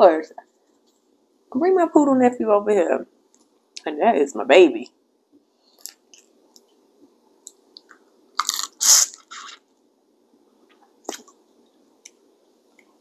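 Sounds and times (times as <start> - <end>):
wet crunchy chewing: 7.7 - 9.7.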